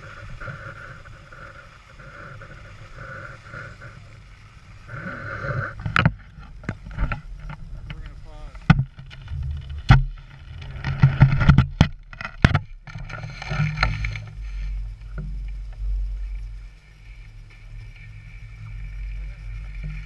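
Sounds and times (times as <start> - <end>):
wind buffeting microphone: 0.0 - 20.0
sharp knocks and clatters: 5.8 - 14.3.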